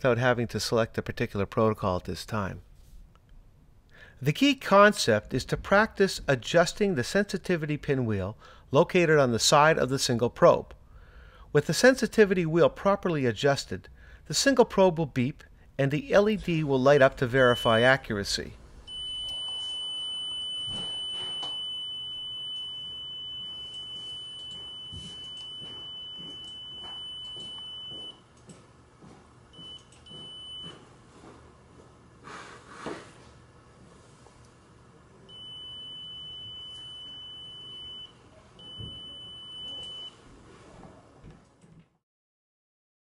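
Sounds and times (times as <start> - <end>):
high-pitched beep tone: 18.9 - 28.2, 35.3 - 40.1.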